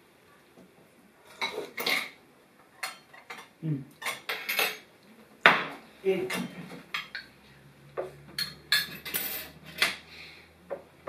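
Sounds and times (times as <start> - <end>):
cutlery clinking on porcelain bowls: 1.3 - 4.9, 6.3 - 7.4, 8.0 - 10.1.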